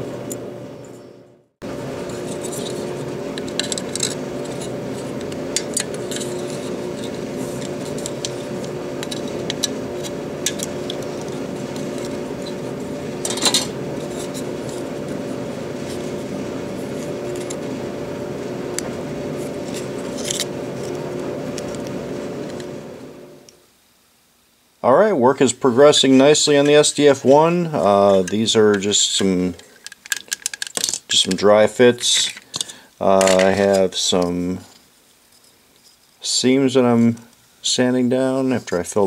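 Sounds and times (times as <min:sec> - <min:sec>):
heater and dryer hum: 0:00.0 - 0:39.0
plastic parts clicking: 0:29.6 - 0:31.4.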